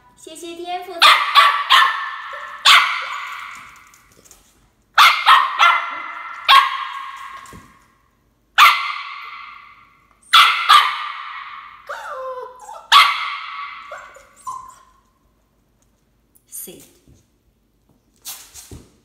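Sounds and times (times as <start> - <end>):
puppy barking: 1.0 - 3.7, 5.0 - 7.4, 8.6 - 9.7, 10.3 - 14.9.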